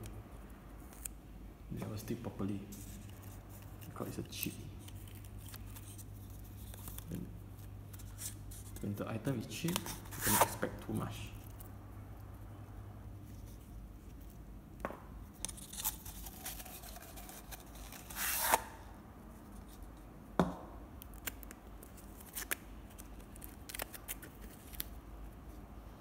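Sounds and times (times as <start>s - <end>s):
handling shuttlecocks and packaging: 0.0s - 11.8s, 13.2s - 25.6s.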